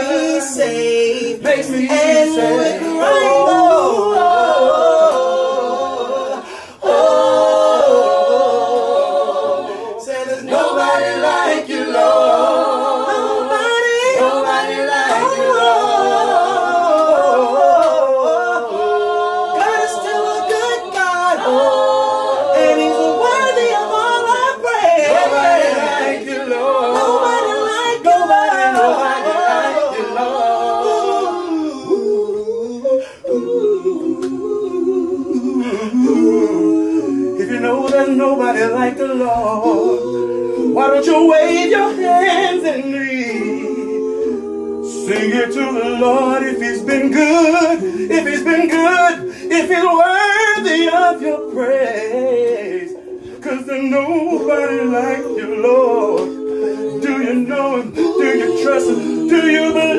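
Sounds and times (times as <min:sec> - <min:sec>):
group singing gospel a cappella: 0:00.0 - 0:59.9.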